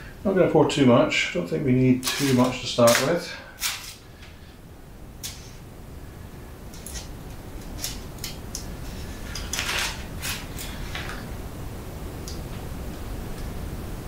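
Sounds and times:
tinfoil crinkling: 0:02.0 - 0:04.3, 0:06.7 - 0:11.2.

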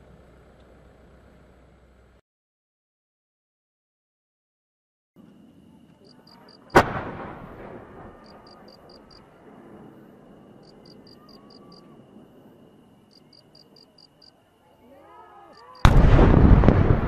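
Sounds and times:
faint steady high tone: 0:05.2 - 0:06.8, 0:08.1 - 0:15.9
faint high beeps: 0:10.5 - 0:14.8, 0:15.4 - 0:15.9.

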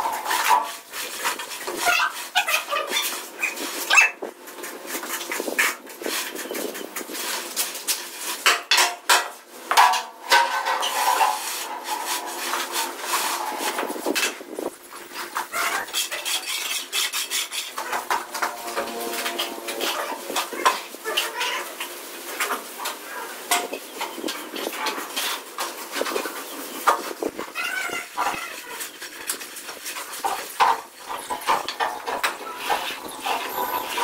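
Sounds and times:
tools scraping on wet mortar: 0:00.0 - 0:34.0
high whining tone: 0:17.8 - 0:21.4.

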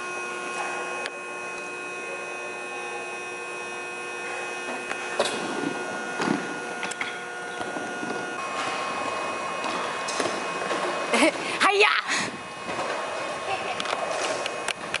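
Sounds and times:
steady whirring hum: 0:00.0 - 0:15.0
skate wheels rolling on ramp: 0:12.6 - 0:15.0.

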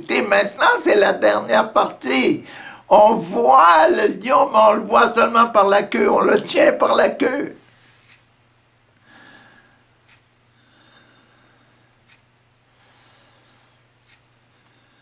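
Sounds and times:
steady low hum: 0:00.0 - 0:15.0
man breathing through nose: 0:12.7 - 0:13.8.

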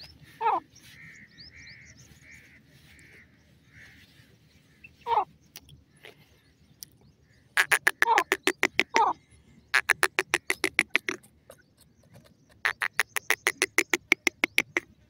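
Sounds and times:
bird calls sliding downward: 0:07.6 - 0:09.1, 0:09.8 - 0:14.8
sharp repeated bird notes: 0:07.6 - 0:15.0.

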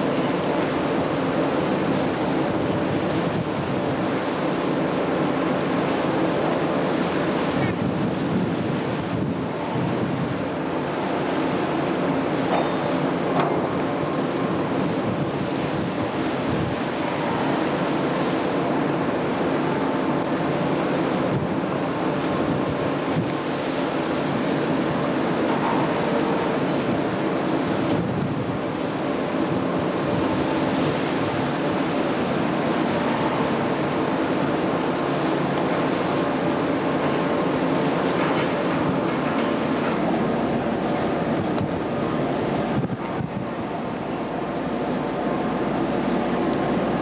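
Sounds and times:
sea waves rushing along ship: 0:00.0 - 0:47.0
wind buffeting microphone: 0:07.6 - 0:10.7, 0:26.5 - 0:28.8, 0:40.1 - 0:45.2.

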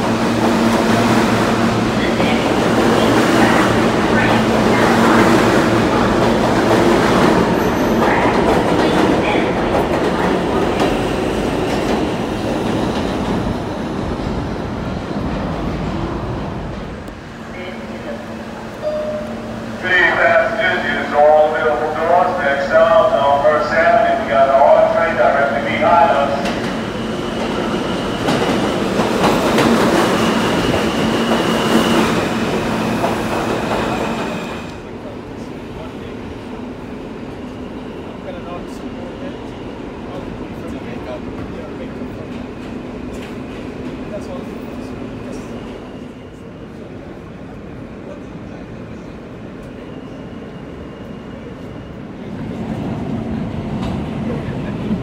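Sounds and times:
subway train rumbling: 0:00.0 - 0:55.0
train wheels clattering over rails: 0:26.3 - 0:34.7.

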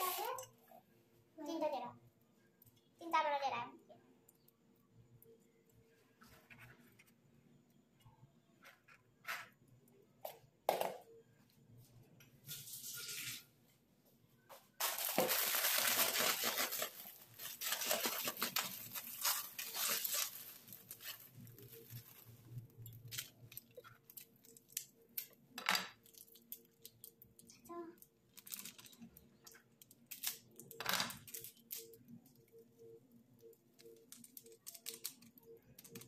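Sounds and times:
plastic packet tearing and crinkling: 0:00.0 - 0:00.5, 0:14.8 - 0:24.9, 0:28.3 - 0:29.1, 0:29.8 - 0:32.0, 0:34.0 - 0:36.0.

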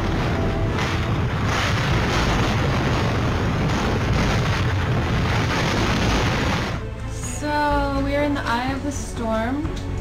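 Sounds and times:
strong wind with rain: 0:00.0 - 0:07.0
wind buffeting microphone: 0:00.0 - 0:07.0.

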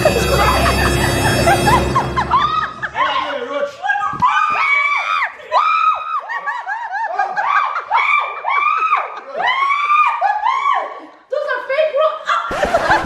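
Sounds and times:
laughter: 0:00.0 - 0:03.0, 0:06.1 - 0:10.8, 0:12.3 - 0:13.0
people screaming and shrieking: 0:00.0 - 0:11.1.

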